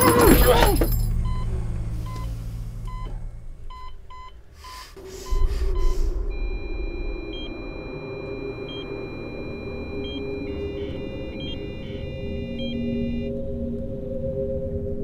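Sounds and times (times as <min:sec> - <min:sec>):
loud low rumble: 0:01.1 - 0:12.9
heart monitor beeping: 0:03.7 - 0:13.4
steady high electronic tone: 0:05.0 - 0:13.4.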